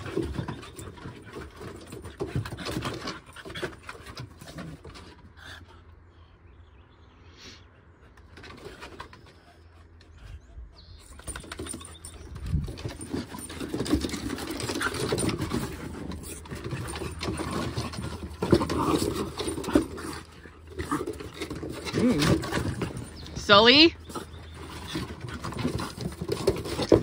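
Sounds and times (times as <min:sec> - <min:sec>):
claws scrabbling on wooden boards: 0:00.0 - 0:05.4, 0:11.1 - 0:23.4, 0:24.0 - 0:27.0
dogs growling and snarling: 0:00.0 - 0:06.0, 0:08.3 - 0:23.3, 0:24.0 - 0:27.0.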